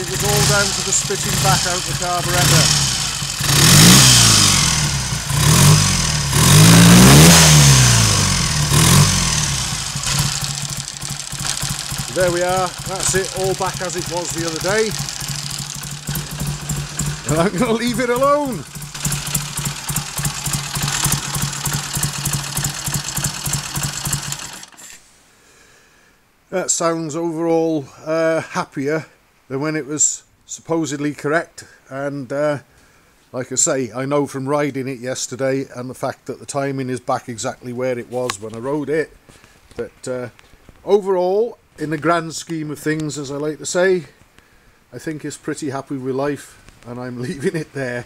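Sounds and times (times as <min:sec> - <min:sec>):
motorcycle engine revving: 0:00.0 - 0:24.9.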